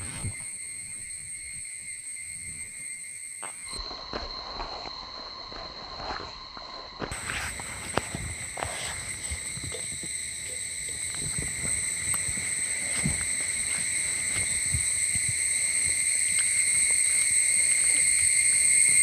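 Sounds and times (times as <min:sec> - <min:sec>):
high insect trill: 0:00.0 - 0:19.0.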